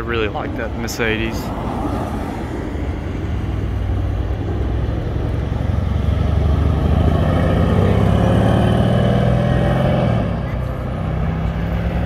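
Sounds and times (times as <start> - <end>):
car engine driving past: 1.3 - 12.0.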